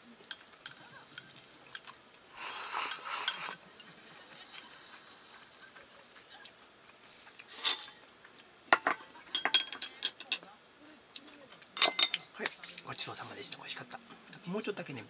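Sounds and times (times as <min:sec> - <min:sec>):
chopsticks scraping ceramic bowl: 0:02.5 - 0:03.6.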